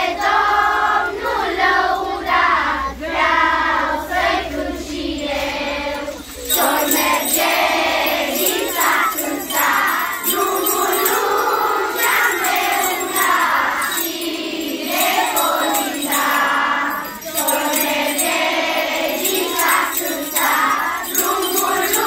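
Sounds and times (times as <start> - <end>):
children singing together: 0.0 - 22.0
jingle bells shaking: 4.4 - 22.0.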